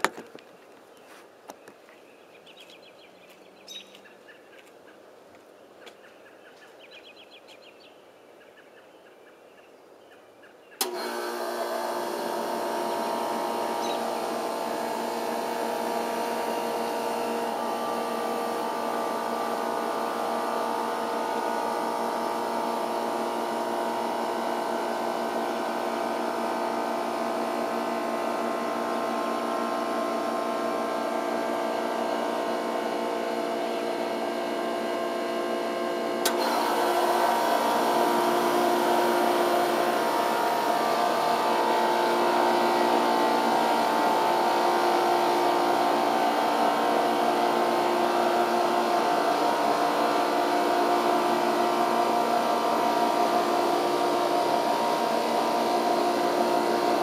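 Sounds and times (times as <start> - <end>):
air conditioner humming: 36.2 - 57.0.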